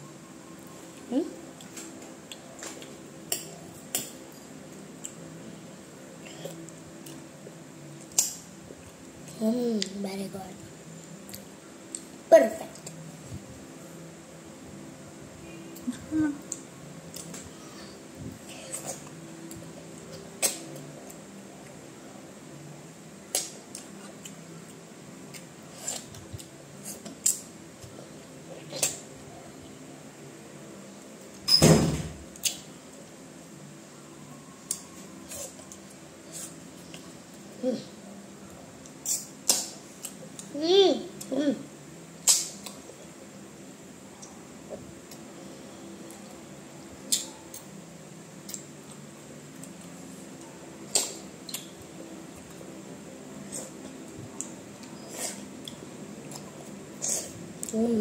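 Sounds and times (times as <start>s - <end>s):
low steady hum: 0.0s - 58.0s
wet mouth smacks eating mango: 42.2s - 42.8s.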